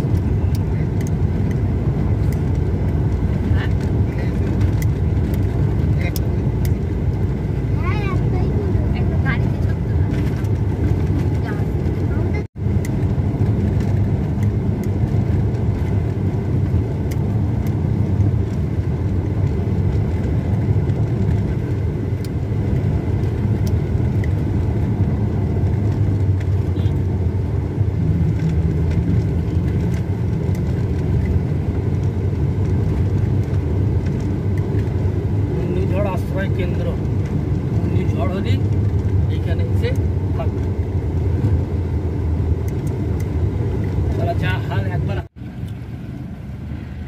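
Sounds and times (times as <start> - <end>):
car engine and tyre rumble: 0.0 - 47.0.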